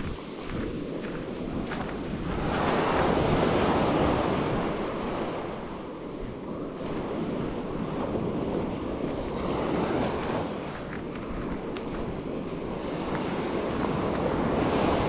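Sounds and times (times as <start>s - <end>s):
small waves breaking on sand: 0.0s - 15.0s
wind rumble on microphone: 0.0s - 15.0s.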